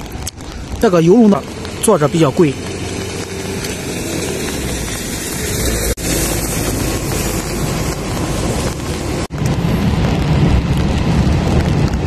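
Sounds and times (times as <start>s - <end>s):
wind buffeting microphone: 2.5s - 12.0s.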